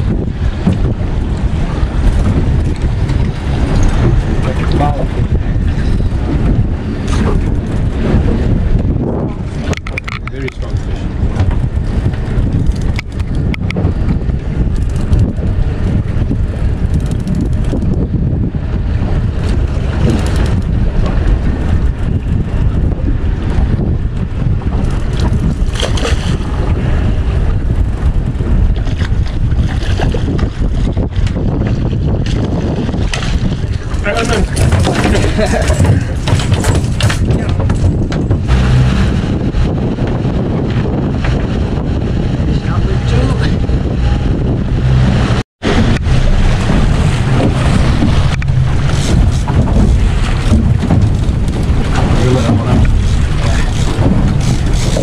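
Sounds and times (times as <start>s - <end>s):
water sloshing against boat hull: 0.0s - 18.0s, 28.0s - 39.5s, 42.6s - 55.0s
outboard motor humming: 0.0s - 55.0s
wind rumbling on microphone: 0.0s - 55.0s.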